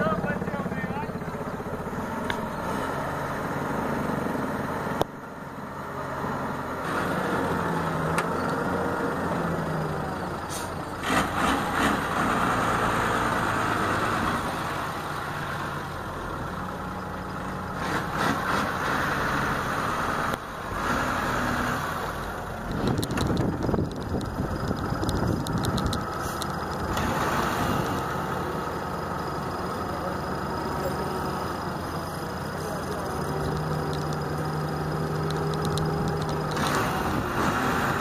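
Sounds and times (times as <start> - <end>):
crane diesel engine running: 0.0 - 38.0.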